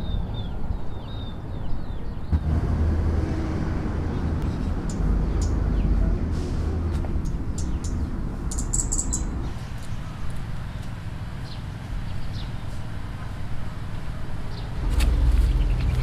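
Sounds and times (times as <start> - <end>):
steady low rumble: 2.2 - 16.0
small birds chirping: 4.1 - 16.0.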